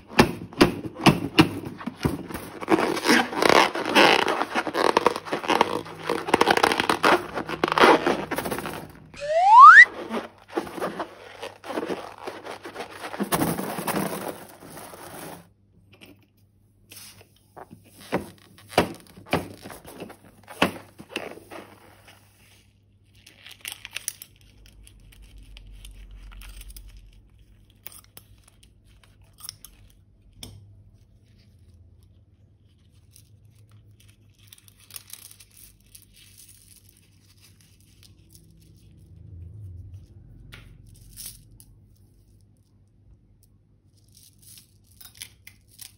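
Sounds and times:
plastic bags crinkling: 0:01.6 - 0:15.5.

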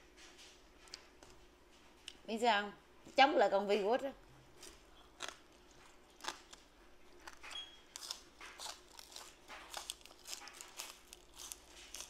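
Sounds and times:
person chewing crunchy vegetables: 0:04.5 - 0:12.0.

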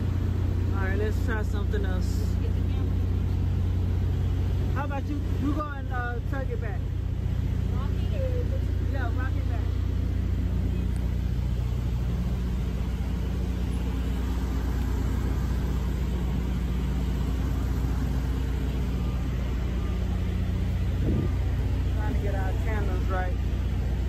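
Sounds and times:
truck diesel engine running: 0:00.0 - 0:24.0.

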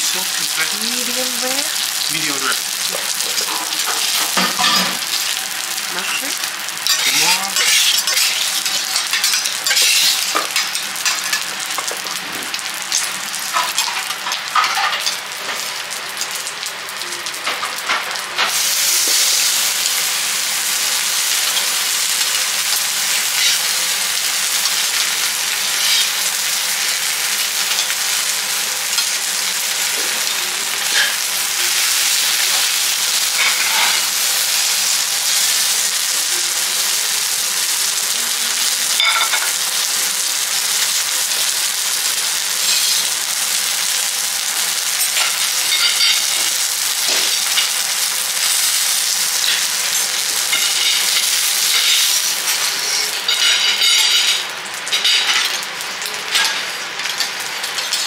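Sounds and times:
meat sizzling on griddle: 0:00.0 - 0:58.0
metal spatula scraping griddle: 0:33.4 - 0:34.1.

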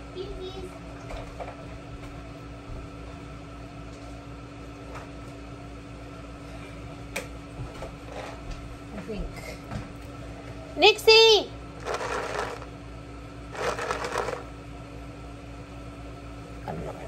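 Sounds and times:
kitchen appliance humming: 0:10.0 - 0:17.0.

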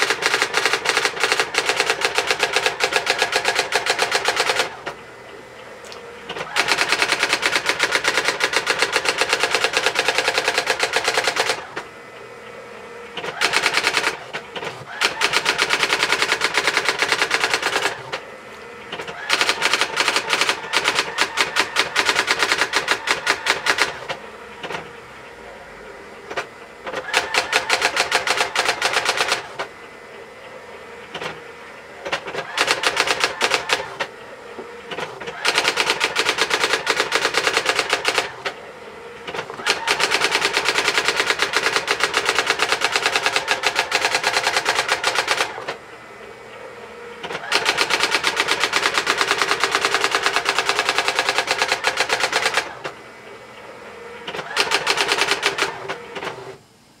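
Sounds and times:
typewriter print-hammer strikes: 0:00.0 - 0:05.0, 0:06.2 - 0:11.9, 0:13.1 - 0:25.0, 0:26.2 - 0:29.7, 0:31.1 - 0:38.6, 0:39.2 - 0:45.8, 0:47.2 - 0:53.0, 0:54.2 - 0:56.6.

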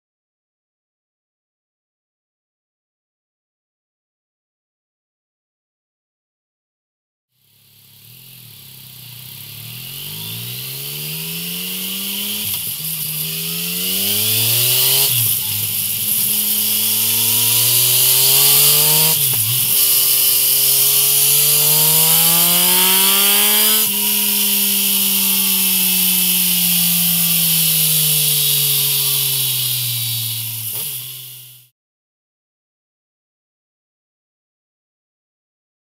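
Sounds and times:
motorcycle engine revving: 0:07.4 - 0:31.7.

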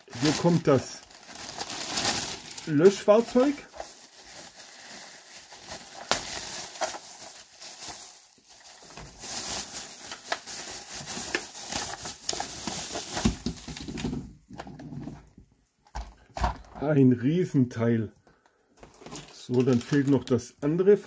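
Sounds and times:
plastic bag rustling: 0:00.0 - 0:14.2, 0:18.8 - 0:20.4.

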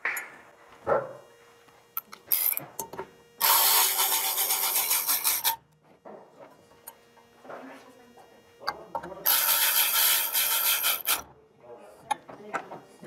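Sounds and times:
electric ratchet motor whirring: 0:02.0 - 0:02.6, 0:03.4 - 0:05.6, 0:09.2 - 0:11.2.

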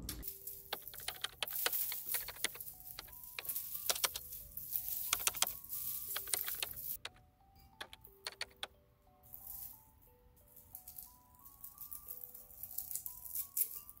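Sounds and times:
background music slow melody: 0:00.0 - 0:14.0
dried leaves crackling and rustling: 0:00.2 - 0:07.0, 0:10.7 - 0:14.0.

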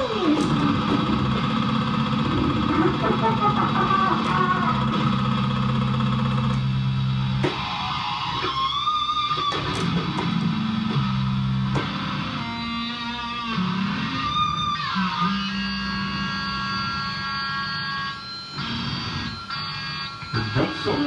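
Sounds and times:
guitar-like synth lead: 0:00.0 - 0:21.0.

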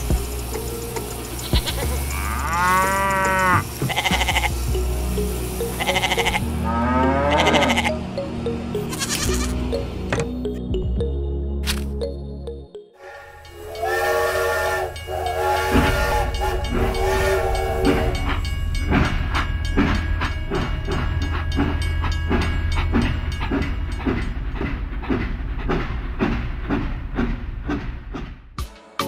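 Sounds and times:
toy motor humming: 0:00.0 - 0:06.5
toy train whistle effect: 0:13.0 - 0:18.4
rhythmic chuffing effect: 0:13.0 - 0:26.3.

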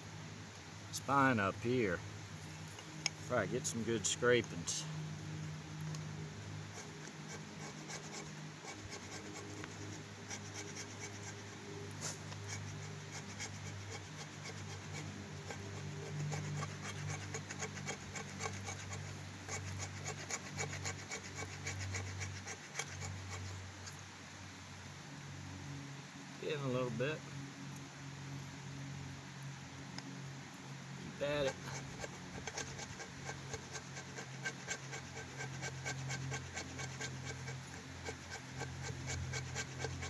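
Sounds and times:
steady low hum: 0:00.0 - 0:40.0
blade scraping wood: 0:06.6 - 0:24.0, 0:31.0 - 0:40.0.

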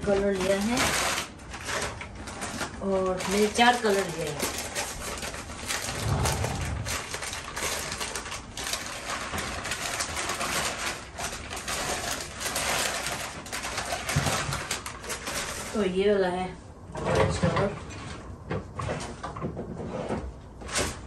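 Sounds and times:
packing paper rustling: 0:00.0 - 0:15.8
brief low hum: 0:05.9 - 0:07.3.

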